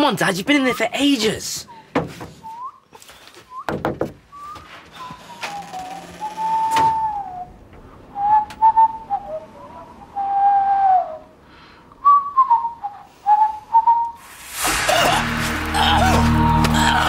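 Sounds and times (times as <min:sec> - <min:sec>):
person whistling a tune: 0:02.4 - 0:07.5, 0:12.0 - 0:14.2.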